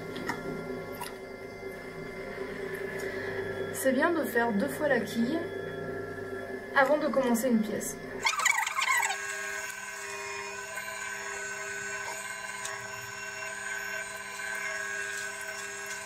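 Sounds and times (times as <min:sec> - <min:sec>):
potter's wheel motor humming: 0:00.0 - 0:16.0.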